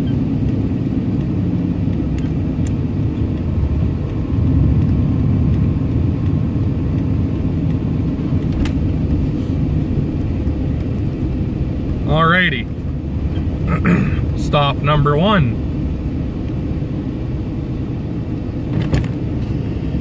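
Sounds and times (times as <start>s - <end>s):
truck engine and road noise: 0.0s - 20.0s
sharp click: 2.1s - 3.5s.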